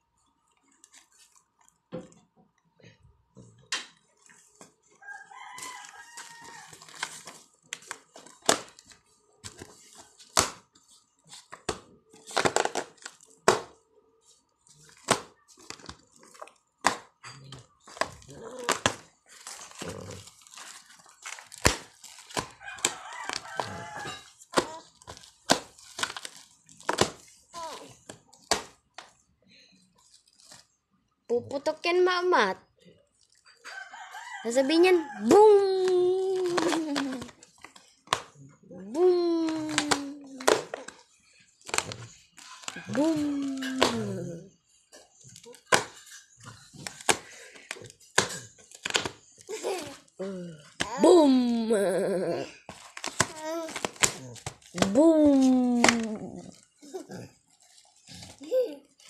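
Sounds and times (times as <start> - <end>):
plastic bag crinkling: 4.1 - 11.5, 14.2 - 16.8, 17.6 - 28.5, 29.9 - 30.8, 35.7 - 38.1.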